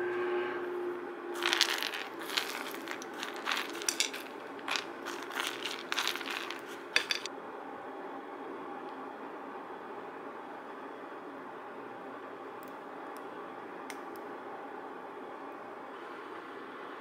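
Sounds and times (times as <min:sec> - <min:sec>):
nuts falling onto ceramic plate: 0:01.4 - 0:07.3.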